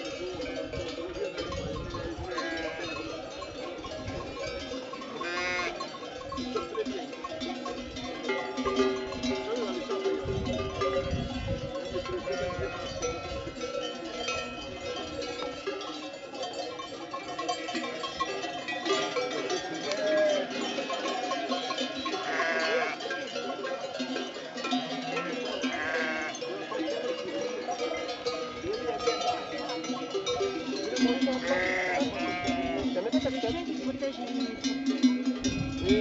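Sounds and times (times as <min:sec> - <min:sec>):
sheep bells jangling: 0:00.0 - 0:36.0
sheep bleating: 0:02.3 - 0:03.0, 0:05.2 - 0:05.8, 0:22.2 - 0:23.0, 0:25.2 - 0:26.4, 0:31.4 - 0:33.0.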